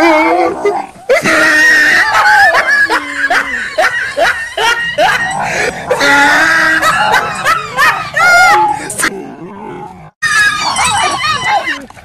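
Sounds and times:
high-pitched laughter: 1.0 - 9.1, 10.2 - 11.8.

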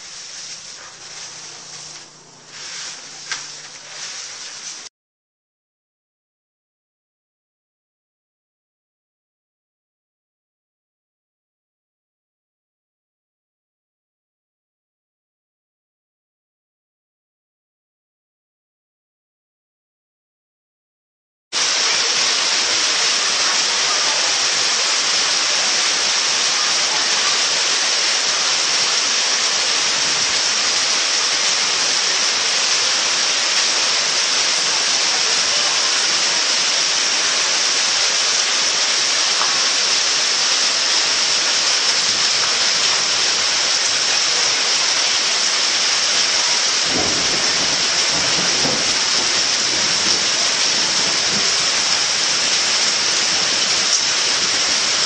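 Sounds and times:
steady loud hiss: 0.0 - 4.9, 21.6 - 55.0.

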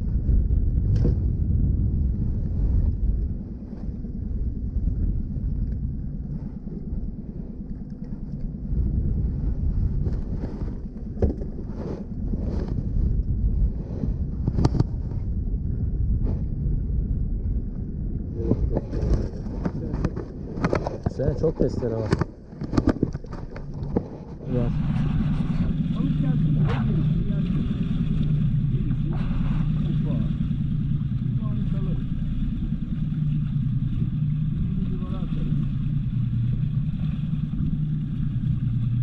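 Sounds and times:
boat motor running: 0.0 - 39.0
wind buffeting microphone: 0.0 - 39.0.

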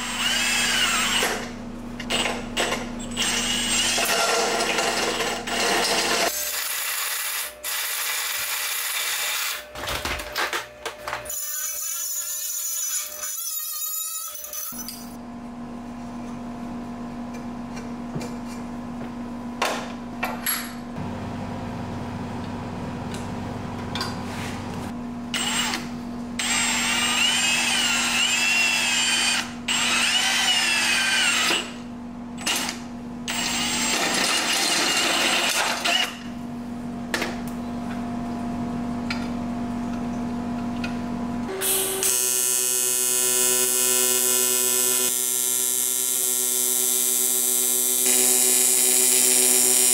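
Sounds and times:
drill hole saw squealing: 0.0 - 1.4, 3.0 - 4.1, 26.4 - 31.7
welding arc buzzing: 5.3 - 9.8, 41.5 - 49.9
die grinder running: 41.5 - 49.9.

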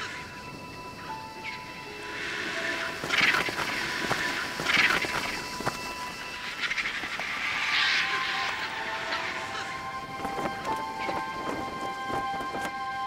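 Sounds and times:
vultures giving harsh hissing screeches: 2.0 - 10.1.

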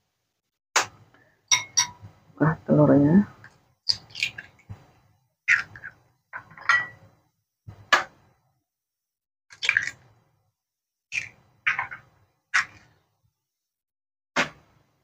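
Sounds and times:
eggshell tapping and crunching: 3.9 - 4.7, 11.1 - 12.8.

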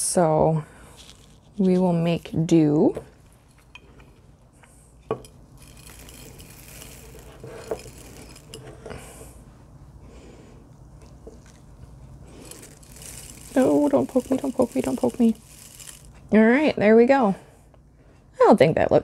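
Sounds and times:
gritty soil trickling into pot: 0.8 - 2.4, 5.6 - 8.7, 12.3 - 16.3.

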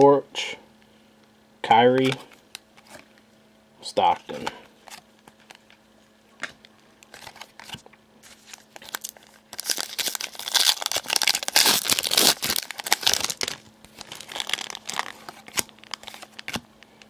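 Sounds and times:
foil wrapper crinkling and tearing: 7.1 - 17.0.

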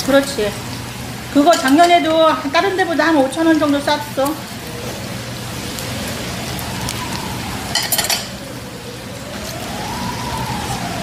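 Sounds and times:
meat sizzling on grill: 0.0 - 11.0
siren wailing: 4.4 - 11.0.

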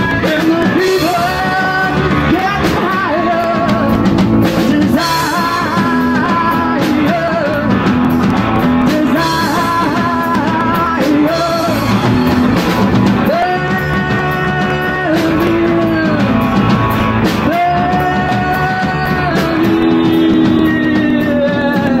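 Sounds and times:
live rock band playing: 0.0 - 22.0
woman singing: 17.4 - 22.0.

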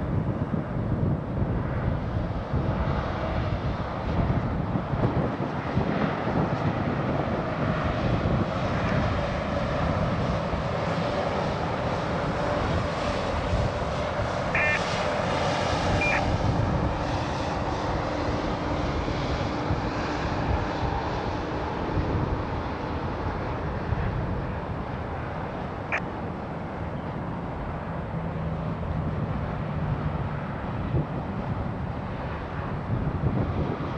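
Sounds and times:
road traffic rumble: 0.0 - 33.9
cars passing: 7.9 - 33.9
brief high chirps: 14.6 - 14.8.

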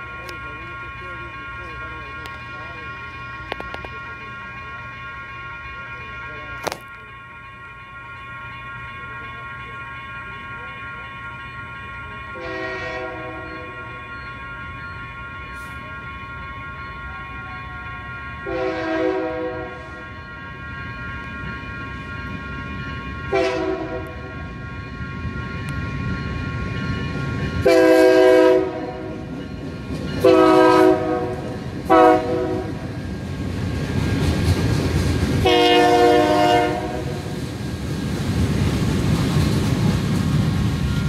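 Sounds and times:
low rumble of train: 0.0 - 41.0
train horn blasts: 12.4 - 13.8, 17.3 - 20.2, 23.3 - 24.4, 27.6 - 29.2, 30.2 - 32.9, 35.4 - 37.4.

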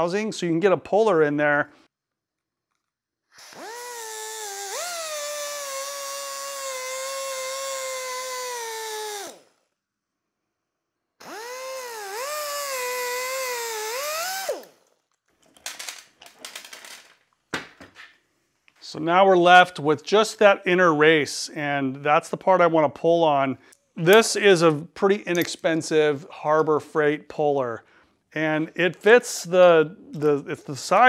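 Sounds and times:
pneumatic grinder whine: 3.4 - 9.6, 11.2 - 14.9.

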